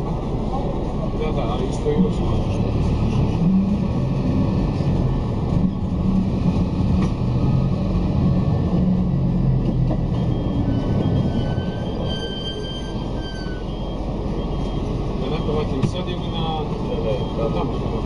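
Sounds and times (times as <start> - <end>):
bus engine rumble: 0.0 - 18.0
road noise: 0.0 - 18.0.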